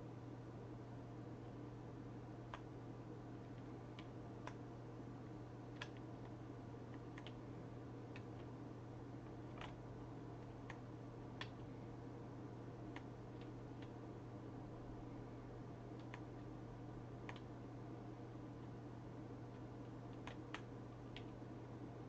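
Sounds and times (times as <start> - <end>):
low electrical hum and hiss: 0.0 - 22.0
faint computer control clicks: 2.5 - 2.7, 5.7 - 7.4, 9.2 - 9.8, 10.4 - 11.7, 15.9 - 16.5, 17.2 - 17.5, 19.6 - 21.4.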